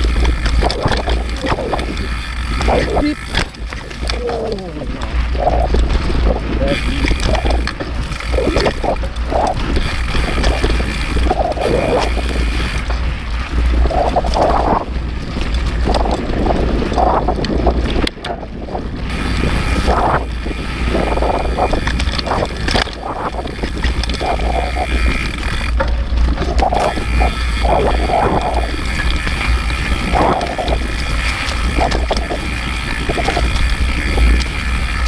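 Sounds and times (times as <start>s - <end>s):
bike rattling over rough trail: 0.0s - 35.0s
wind buffeting microphone: 0.0s - 35.0s.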